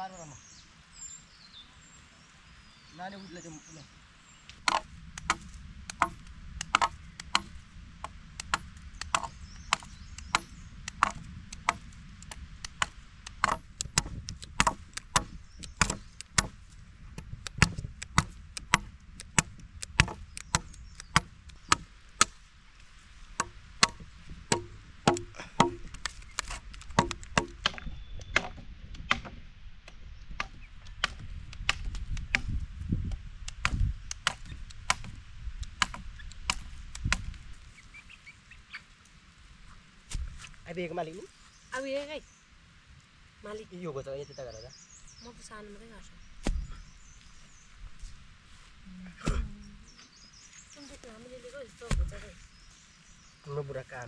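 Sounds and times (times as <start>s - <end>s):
wood chopping strikes: 4.5s - 22.5s, 23.3s - 37.4s, 40.1s - 40.5s, 46.4s - 46.8s, 49.2s - 49.5s, 51.8s - 52.3s.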